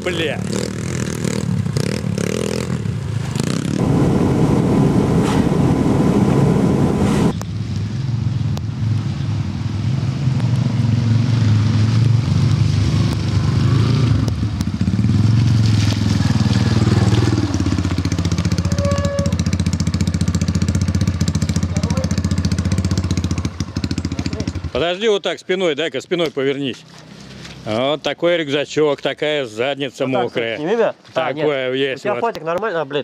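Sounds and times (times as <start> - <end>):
motorcycles revving: 0.0 - 24.9.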